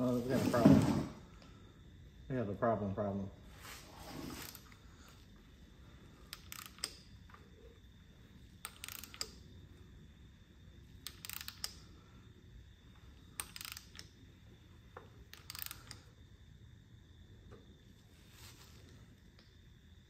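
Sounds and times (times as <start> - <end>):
light mechanical clicking: 6.3 - 7.5, 8.5 - 9.6, 11.0 - 12.0, 14.9 - 16.2.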